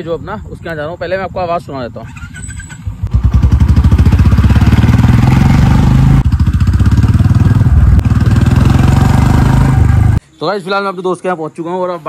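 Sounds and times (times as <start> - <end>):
motorcycle exhaust: 2.9 - 10.2.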